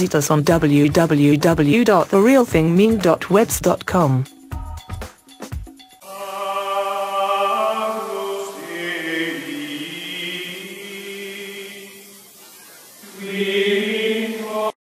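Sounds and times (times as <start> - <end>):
chant-like voices sustained chords: 6.0 - 14.8.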